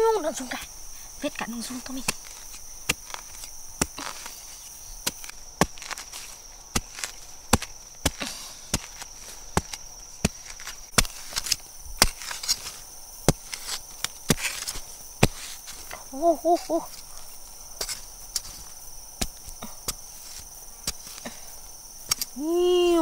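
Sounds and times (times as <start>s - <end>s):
machete chopping into soil: 1.8s - 16.0s, 16.6s - 22.6s.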